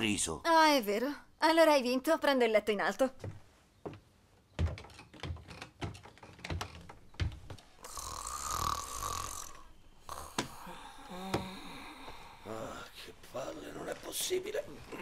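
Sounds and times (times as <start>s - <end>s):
woman snoring: 7.8s - 12.9s.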